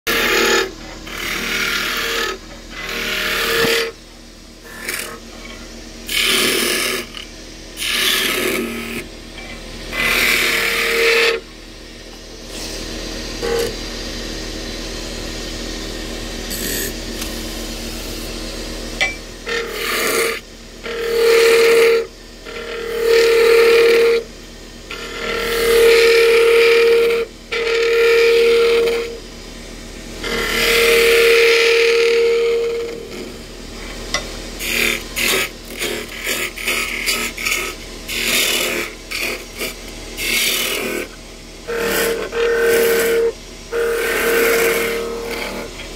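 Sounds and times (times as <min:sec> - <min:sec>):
chisel scraping wood: 0:00.1 - 0:04.0, 0:04.7 - 0:07.2, 0:34.6 - 0:41.1
wood lathe running: 0:00.1 - 0:04.0, 0:04.7 - 0:05.3, 0:06.0 - 0:09.1, 0:09.8 - 0:11.5, 0:19.3 - 0:29.2, 0:30.2 - 0:34.0, 0:34.6 - 0:45.9.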